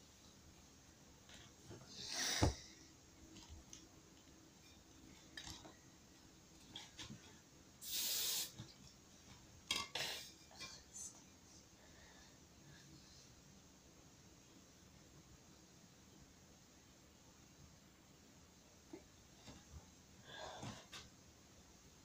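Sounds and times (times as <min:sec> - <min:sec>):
thump: 0:02.4 - 0:02.6
handling knocks and rustles: 0:06.5 - 0:07.4.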